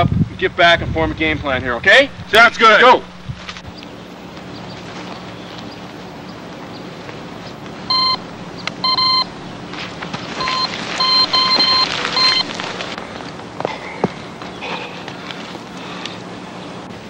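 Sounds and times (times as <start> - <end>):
low hum: 1.1 - 17.0
electronic beeps: 7.9 - 8.2, 8.8 - 9.3, 10.4 - 12.5.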